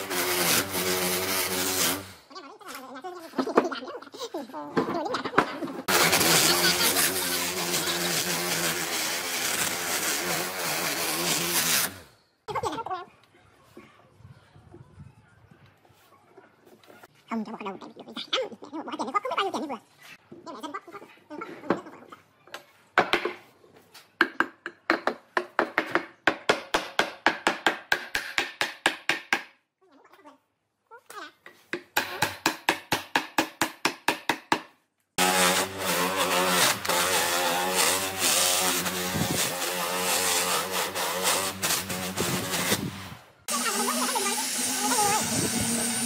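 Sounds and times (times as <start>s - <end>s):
angle grinder grinding wood: 0.0s - 2.3s, 5.8s - 12.1s, 35.2s - 46.0s.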